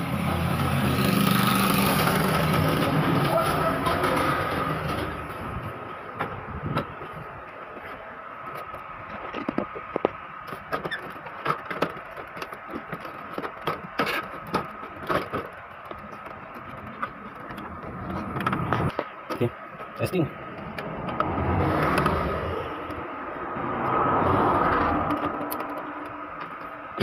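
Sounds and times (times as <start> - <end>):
plastic clicks and knocks: 8.7 - 22.2, 25.0 - 26.8.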